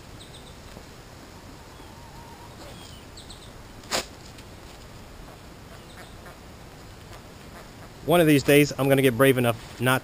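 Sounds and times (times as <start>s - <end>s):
faint bird chirps: 0.1s - 0.6s, 1.6s - 3.6s, 5.3s - 6.4s.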